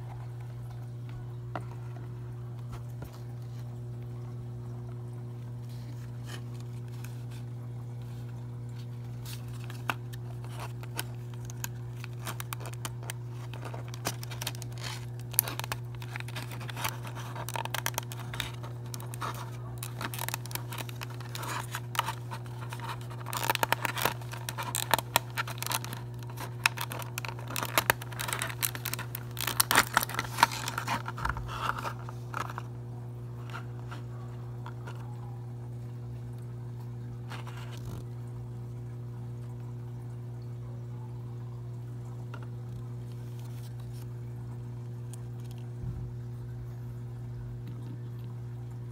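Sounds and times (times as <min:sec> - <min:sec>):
plastic packaging crackling: 0:00.0 - 0:35.7, 0:36.3 - 0:38.2, 0:42.0 - 0:46.3
steady low hum: 0:00.0 - 0:48.9.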